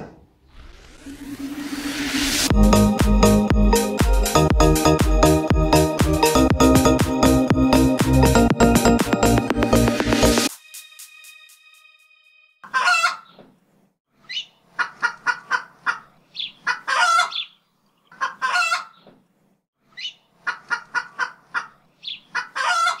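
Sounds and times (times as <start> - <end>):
chicken clucking: 12.6 - 13.5, 14.3 - 19.2, 20.0 - 23.0.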